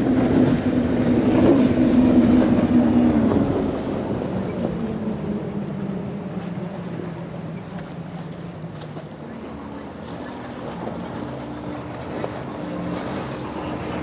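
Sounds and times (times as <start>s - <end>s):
motorboat engines droning: 0.0s - 14.0s.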